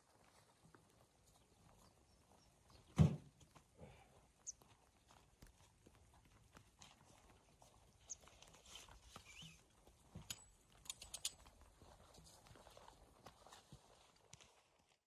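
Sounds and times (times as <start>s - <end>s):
footsteps on snow: 11.5s - 15.0s.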